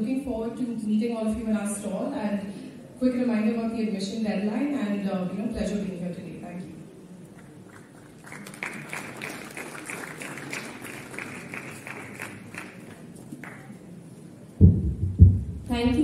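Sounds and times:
audience clapping: 7.4 - 13.8
microphone handling thuds: 14.6 - 16.0.

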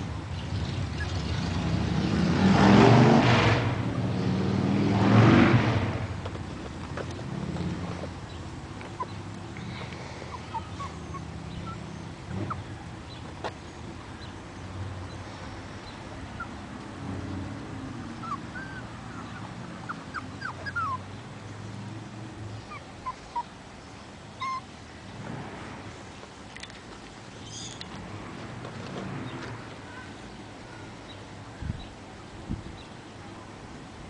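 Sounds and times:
puppies whimpering: 8.8 - 12.8, 18.2 - 21.1, 22.6 - 23.6, 24.4 - 24.7.

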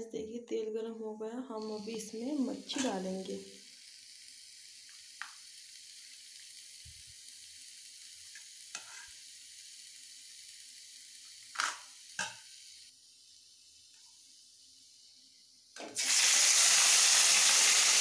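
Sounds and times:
hot oil hissing: 1.6 - 18.0.

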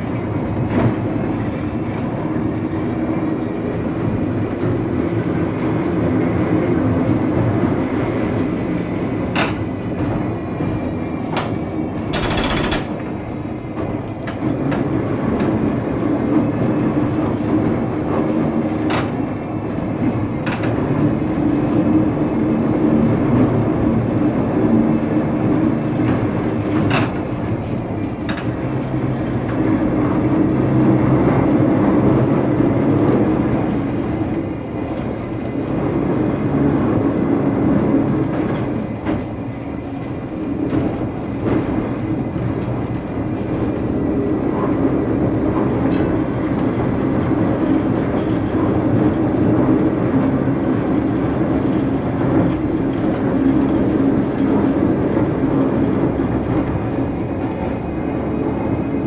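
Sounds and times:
tram running rumble: 0.0 - 59.0
tram clicks: 7.8 - 21.4, 25.9 - 30.3, 38.2 - 58.9.

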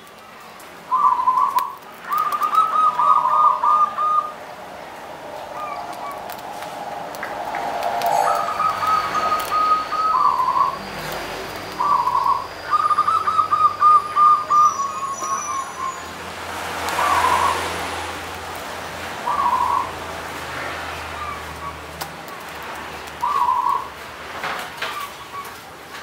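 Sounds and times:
dove cooing: 0.9 - 4.4, 8.0 - 10.8, 11.8 - 15.6, 16.9 - 17.7, 19.2 - 20.0, 23.2 - 23.9.

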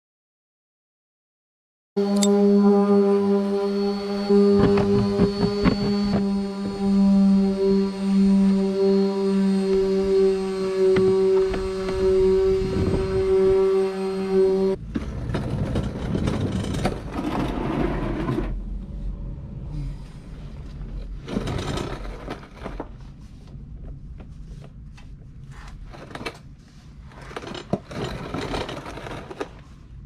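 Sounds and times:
loud rushing noise: 3.7 - 14.9
tools scraping under a car: 10.8 - 18.7, 20.6 - 23.3, 25.4 - 30.0.

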